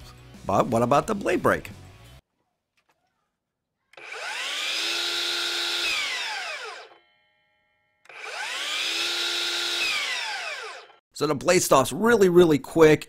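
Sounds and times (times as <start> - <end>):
miter saw whining: 4.0 - 7.3, 8.0 - 11.0.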